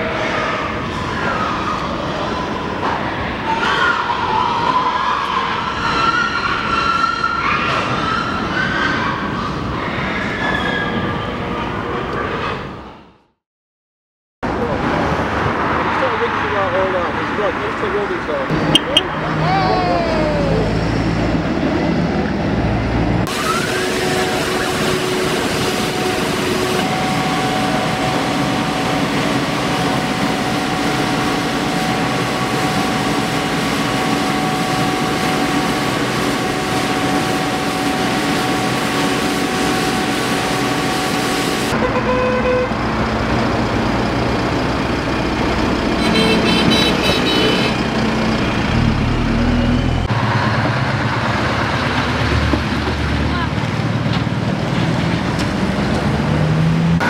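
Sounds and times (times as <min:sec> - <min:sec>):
road traffic: 0:00.0 - 0:13.3, 0:14.4 - 0:57.0
heavy lorry passing: 0:14.4 - 0:57.0
pressure washer machine hum: 0:23.2 - 0:50.3
car horn tooting: 0:23.3 - 0:35.4, 0:41.7 - 0:42.8, 0:46.0 - 0:47.9.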